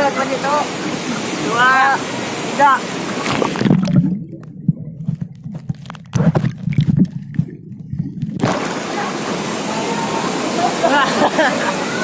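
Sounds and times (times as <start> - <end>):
waterfall rushing water: 0.0 - 3.6, 8.4 - 12.0
bubbling and gurgling: 0.8 - 9.8
muffled underwater rumble: 3.2 - 9.3.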